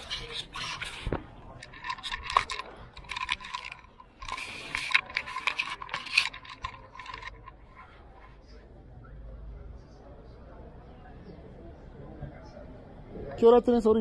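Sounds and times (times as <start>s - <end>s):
small hard objects clinking: 0.0s - 7.8s.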